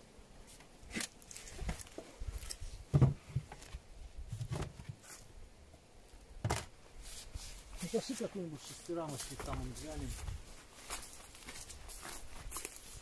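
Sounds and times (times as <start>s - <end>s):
handling rustles and knocks: 0.5s - 5.3s
thump: 2.9s - 3.2s
footsteps: 7.0s - 13.0s.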